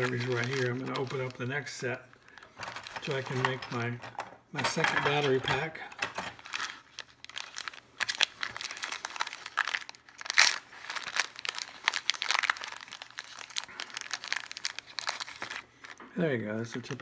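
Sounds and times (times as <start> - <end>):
plastic bag crinkling: 0.0 - 17.0.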